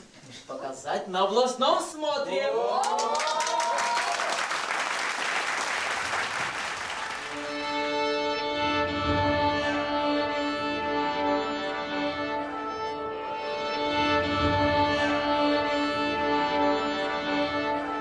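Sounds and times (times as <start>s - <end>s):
orchestral swell: 7.2s - 18.0s.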